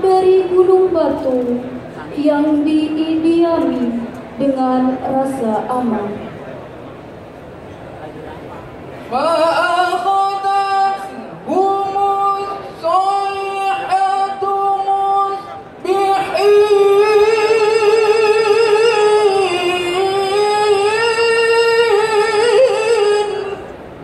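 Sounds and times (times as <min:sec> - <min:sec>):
man chanting through a microphone: 0:09.0 - 0:23.7.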